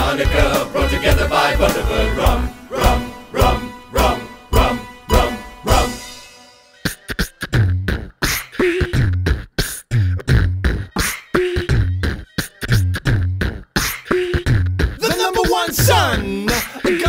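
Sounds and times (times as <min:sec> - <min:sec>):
person beatboxing: 0:06.9 - 0:17.0.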